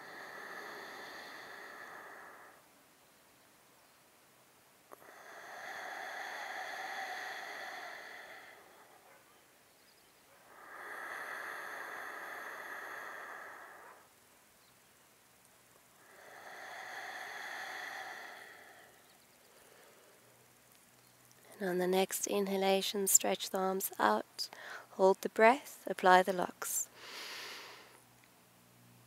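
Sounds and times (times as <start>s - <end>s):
woman breathing deeply: 0.0s - 2.7s, 4.9s - 9.1s, 10.4s - 14.2s, 16.0s - 20.5s, 24.5s - 24.9s, 26.9s - 28.0s.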